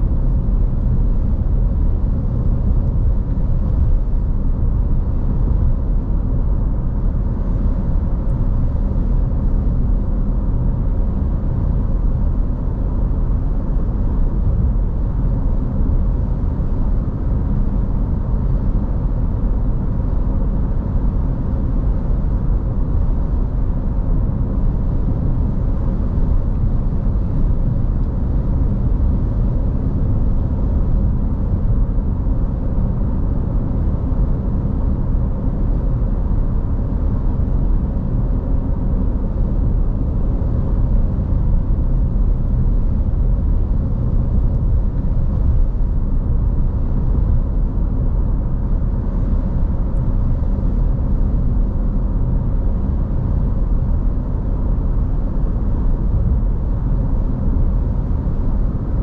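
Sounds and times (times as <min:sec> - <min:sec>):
road and engine rumble: 0:00.0 - 0:59.0.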